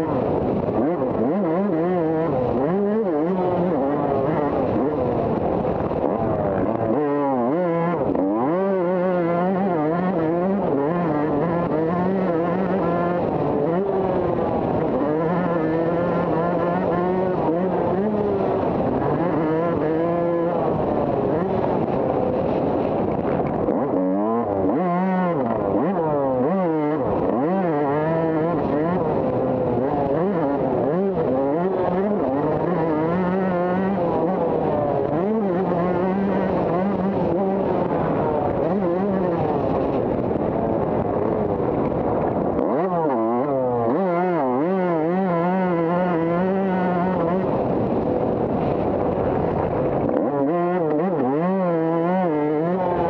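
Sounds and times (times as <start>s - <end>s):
motocross bike engine revving: 0.0s - 53.0s.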